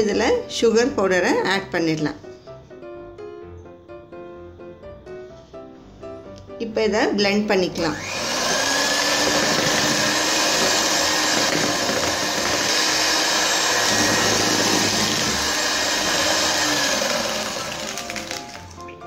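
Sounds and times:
electric hand mixer whining: 7.7s - 18.9s.

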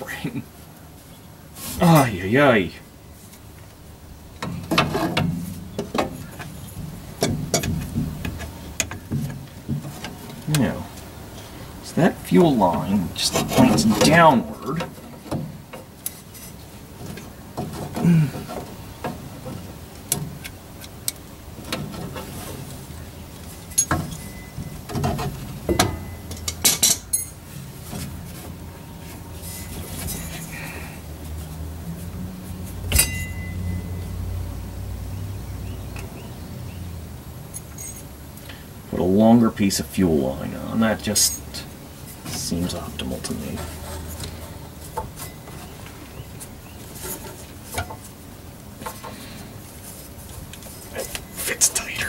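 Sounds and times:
hands handling engine parts: 4.4s - 11.6s, 42.0s - 52.0s.

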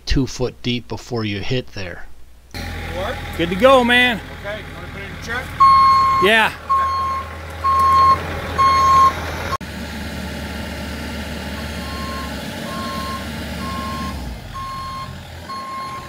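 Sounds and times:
diesel engine running: 2.6s - 16.0s
excavator travel alarm beeping: 5.6s - 9.2s, 11.6s - 16.0s.

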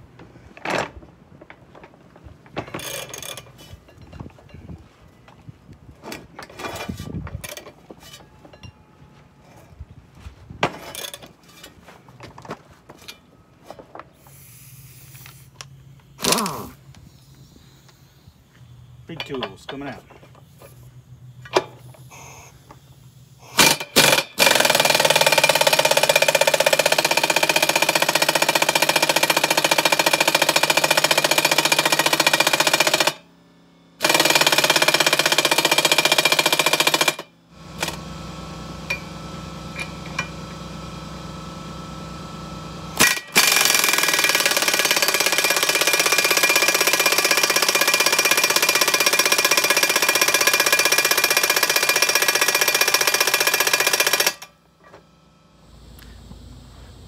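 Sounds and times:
pneumatic impact wrench hammering: 2.6s - 4.2s, 10.6s - 11.7s, 14.2s - 16.7s, 19.2s - 33.3s, 34.0s - 42.0s, 42.8s - 55.1s.

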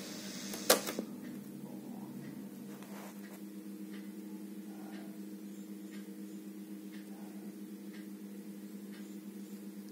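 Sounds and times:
faint electrical hum: 0.0s - 9.9s
soft ticks: 3.2s - 4.1s, 5.9s - 6.1s, 6.9s - 7.1s, 7.9s - 8.1s, 8.9s - 9.1s.

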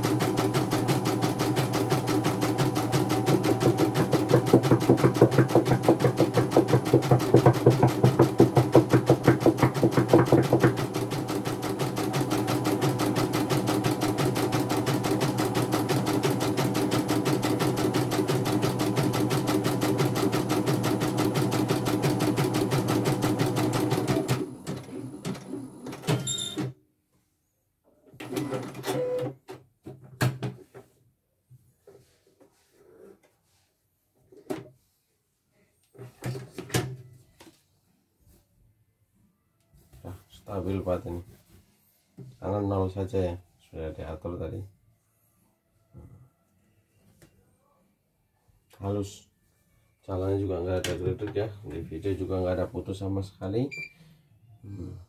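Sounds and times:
embroidery machine stitching: 0.0s - 26.7s, 28.2s - 29.3s.

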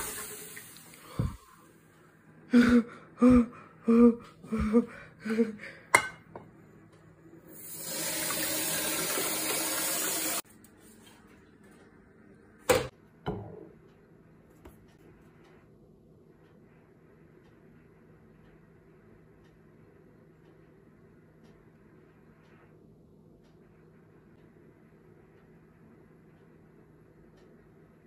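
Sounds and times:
water hissing on hot pan: 0.0s - 1.4s, 7.5s - 10.4s.

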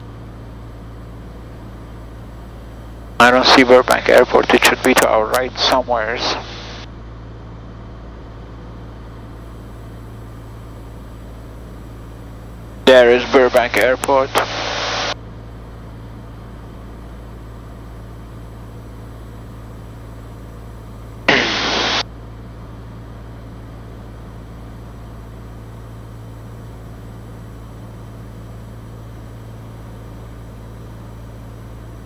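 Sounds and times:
propeller plane engine droning: 0.0s - 32.0s
sharp burst of hiss: 21.3s - 22.0s.

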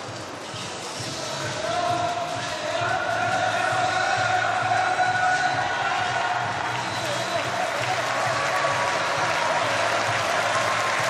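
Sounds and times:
crowd clapping and cheering: 1.7s - 11.0s.

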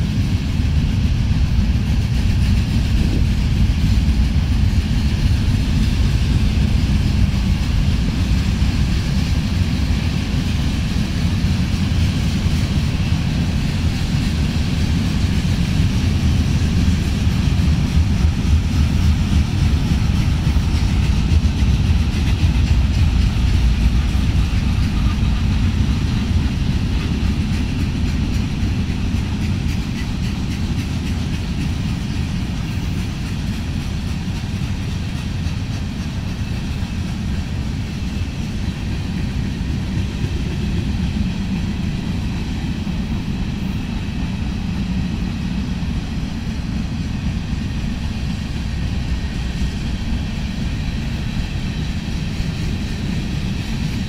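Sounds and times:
freight train rolling past: 0.0s - 54.0s.

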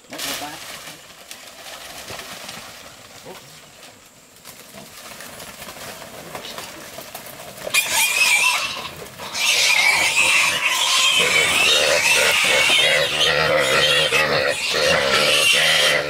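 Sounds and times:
young pig squealing shrilly: 7.7s - 16.0s.

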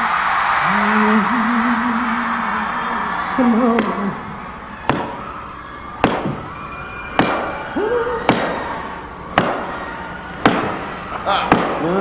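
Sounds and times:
echoing percussive hits: 4.9s - 5.2s, 6.0s - 6.5s, 7.2s - 7.6s, 8.3s - 8.6s, 9.4s - 9.8s, 10.4s - 11.9s.

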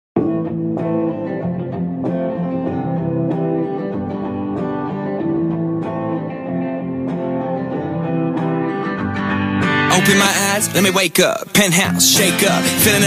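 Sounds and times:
instrumental guitar chords: 0.2s - 13.0s.

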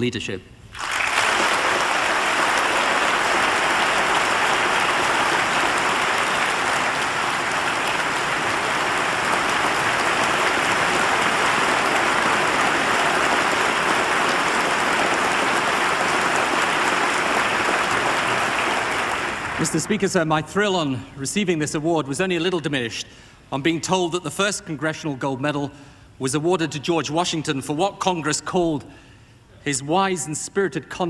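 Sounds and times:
large audience clapping: 0.7s - 20.1s.

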